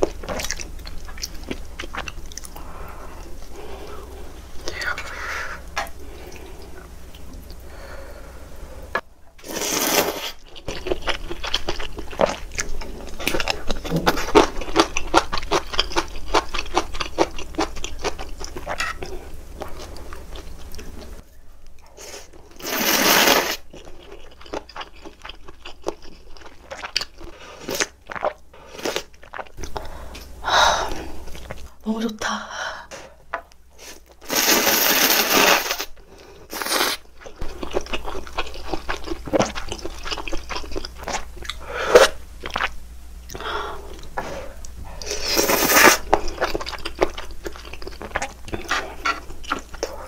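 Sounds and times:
wet chewing and crunching: 0.0s - 3.6s, 9.6s - 30.3s, 36.6s - 50.0s
noodles slurped: 22.0s - 23.9s, 33.8s - 42.7s, 45.0s - 50.0s.

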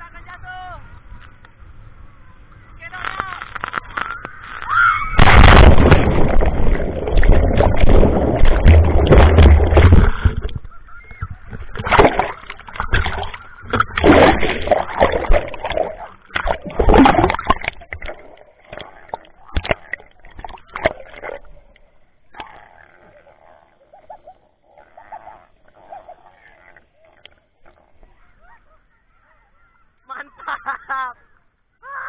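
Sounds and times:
water sloshing and gurgling: 3.5s - 28.6s
heavy splashing water: 5.0s - 10.6s, 11.4s - 21.6s.

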